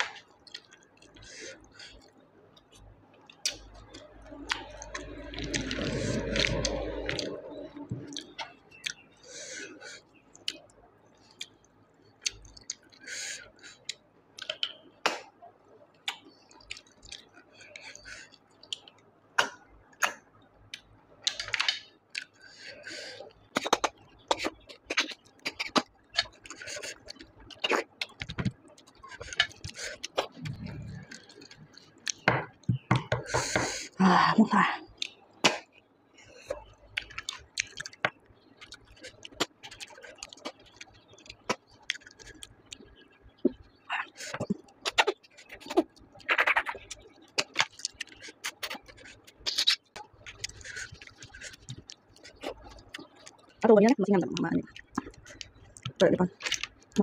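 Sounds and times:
lip smacks and mouth clicks: 13.8 - 15.3, 16.0 - 22.4, 23.4 - 33.1, 36.5 - 56.9
wet lip smacks while chewing: 44.2 - 53.5, 54.7 - 56.7.

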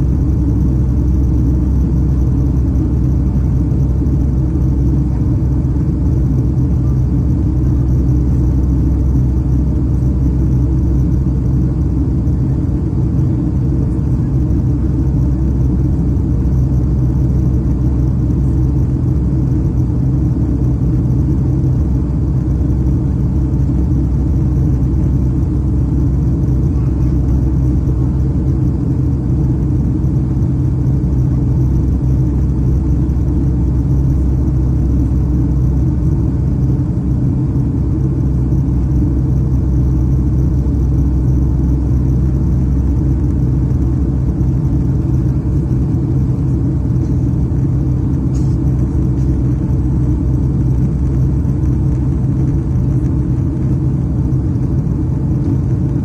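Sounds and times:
airplane cabin engine rumble: 0.0 - 56.0.

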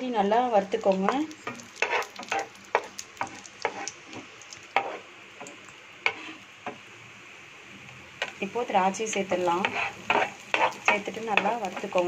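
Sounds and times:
faint sizzle: 0.0 - 12.0
spatula knocking and scraping pan: 1.0 - 5.0, 6.0 - 6.8, 9.1 - 12.0.

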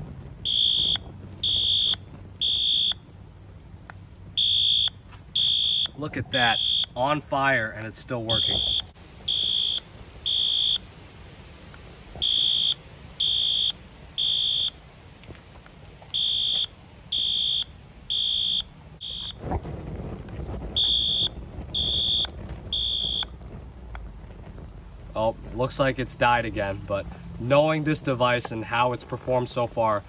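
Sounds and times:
flames rushing: 0.0 - 30.0
fire alarm horn beeping: 0.4 - 3.0, 4.4 - 7.0, 8.3 - 10.8, 12.2 - 14.8, 16.1 - 19.4, 20.8 - 23.3.

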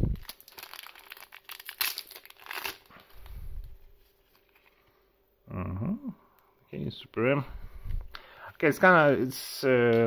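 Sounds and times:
foil pack tearing and crinkling: 0.1 - 3.2.

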